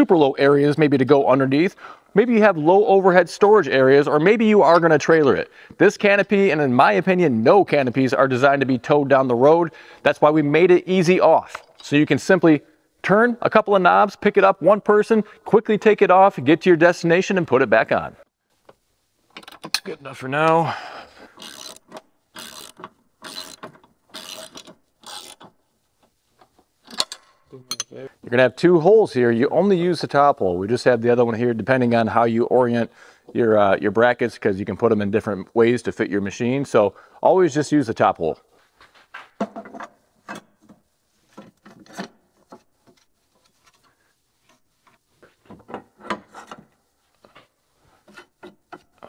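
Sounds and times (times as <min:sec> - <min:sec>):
ratchet wrench clicking: 0:21.4 - 0:21.8, 0:22.4 - 0:25.4
metal frame knocks and clicks: 0:39.2 - 0:43.0.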